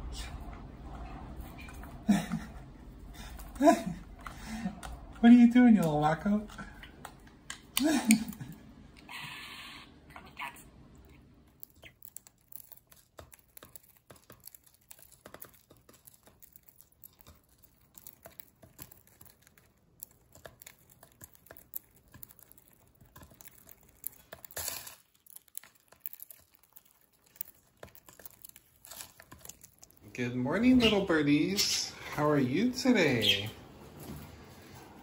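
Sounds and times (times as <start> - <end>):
birds cracking seeds: 11.1 - 33.6.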